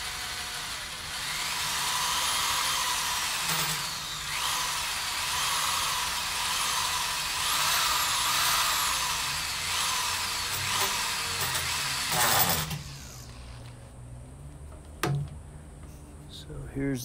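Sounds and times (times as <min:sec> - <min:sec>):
electric drill whining: 0:00.0 - 0:13.8.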